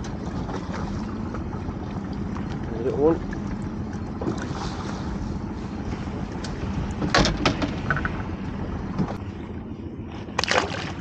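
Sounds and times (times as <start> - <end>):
wind and water rumble: 0.0 - 11.0
sharp knocks on boat: 6.4 - 8.3, 8.9 - 9.2.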